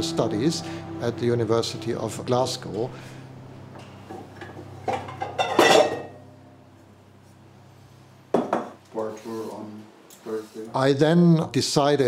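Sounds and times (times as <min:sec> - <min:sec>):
kitchenware clattering: 0:04.1 - 0:06.2.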